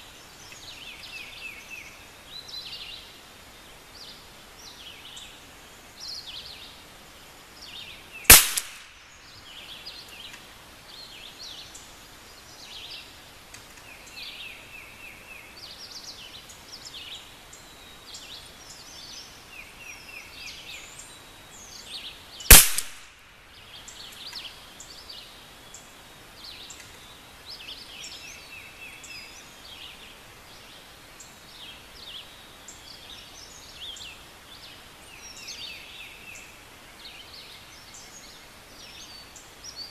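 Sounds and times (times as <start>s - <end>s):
rifle shot crack: 8.3s - 9.0s, 22.5s - 23.3s.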